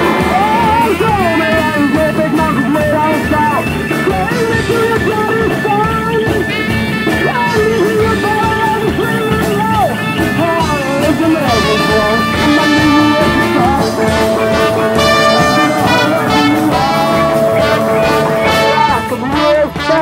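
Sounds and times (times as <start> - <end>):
live rock band: 0.0 - 20.0
sliding melody line: 0.0 - 20.0.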